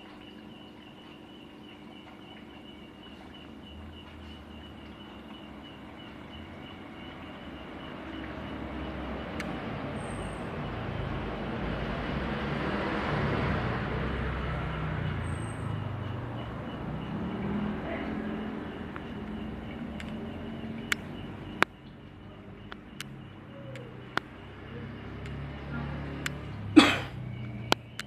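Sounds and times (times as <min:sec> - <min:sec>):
air pump humming and ticking: 0:18.3 - 0:25.6.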